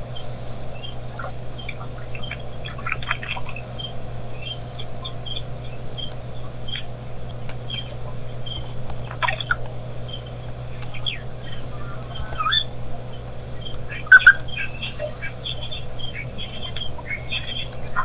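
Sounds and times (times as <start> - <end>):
low electrical hum: 0.0 - 18.0
small birds chirping: 0.0 - 18.0
soft clicks: 6.0 - 11.2, 13.6 - 14.6.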